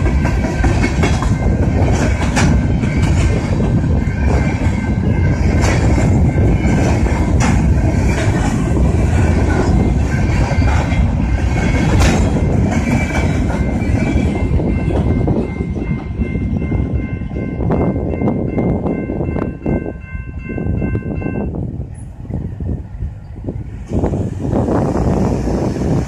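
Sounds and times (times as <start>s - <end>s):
wheels clacking over rail joints: 0.0s - 16.1s
crossing warning bell ringing: 0.0s - 22.1s
freight train rolling past: 0.0s - 26.0s.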